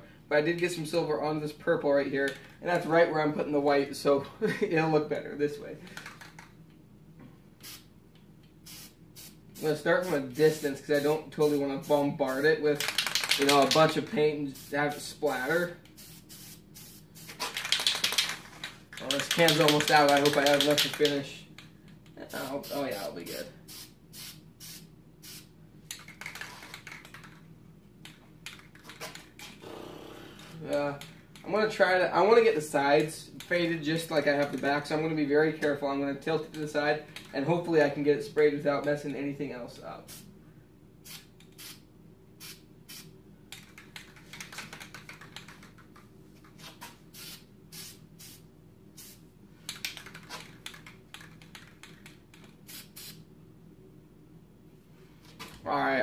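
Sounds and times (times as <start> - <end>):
spray paint hissing spurts: 7.6 - 7.9, 8.6 - 21.1, 22.3 - 27.1, 47.1 - 48.4, 52.7 - 53.2.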